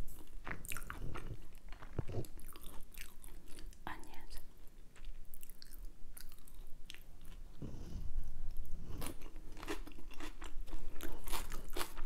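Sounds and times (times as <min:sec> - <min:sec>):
person chewing food: 0:00.0 - 0:03.8, 0:04.6 - 0:12.0.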